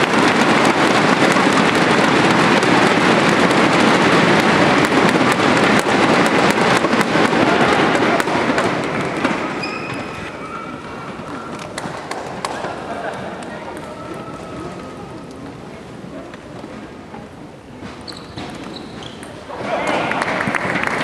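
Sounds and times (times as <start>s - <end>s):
thunder sticks clattering: 0.0s - 13.5s
crowd cheering: 0.0s - 14.6s, 19.5s - 21.0s.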